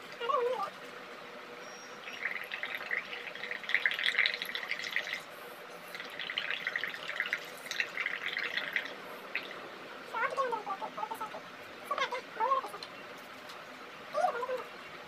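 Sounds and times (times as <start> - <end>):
bubbling through straw in soapy water: 2.0 - 5.3, 5.9 - 9.6.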